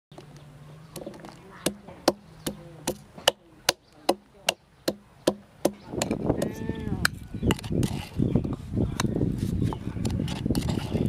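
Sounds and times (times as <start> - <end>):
wooden pestle pounding in mortar: 1.0 - 7.9.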